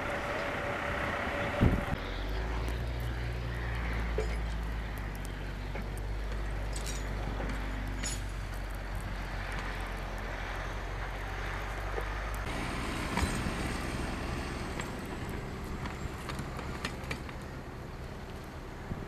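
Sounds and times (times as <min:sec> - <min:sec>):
vehicle engines idling: 0:00.0 - 0:19.0.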